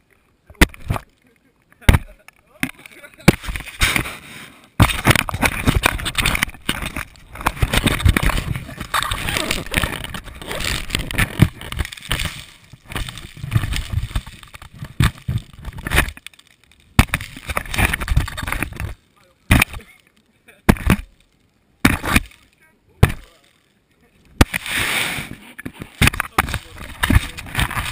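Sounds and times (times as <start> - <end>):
ball thumps: 0.5 - 1.1, 1.8 - 4.1, 17.0 - 19.8, 20.7 - 21.1, 21.8 - 22.4, 23.0 - 23.4, 25.6 - 27.9.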